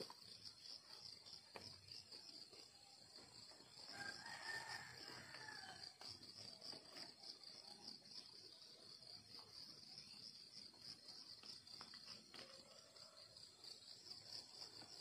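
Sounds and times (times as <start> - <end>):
crickets chirping: 0.0 - 15.0
rooster crowing faintly: 3.9 - 5.9.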